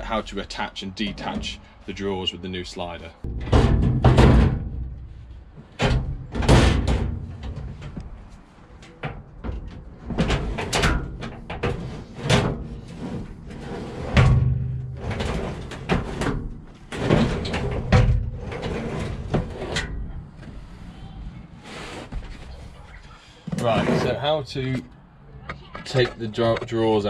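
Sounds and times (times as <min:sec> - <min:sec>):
steel drawer sliding and clanking: 0:09.5 - 0:20.0, 0:23.5 - 0:24.4.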